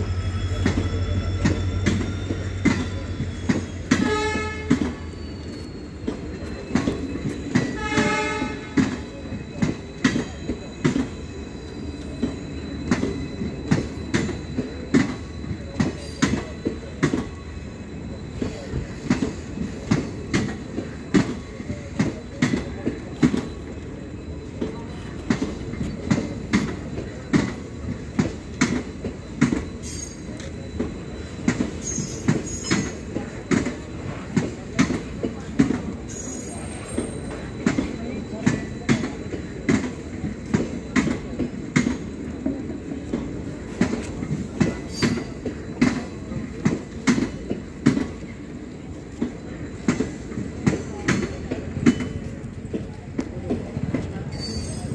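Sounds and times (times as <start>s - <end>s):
low train rumble: 0.0s - 54.9s
train wheels clickety-clack: 0.0s - 54.9s
train horn blast: 3.9s - 5.0s, 7.7s - 8.9s.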